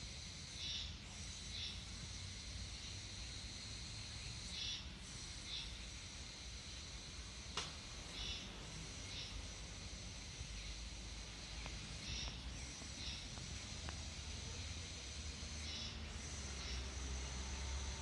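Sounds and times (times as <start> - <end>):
low steady rumble: 4.9 - 18.0.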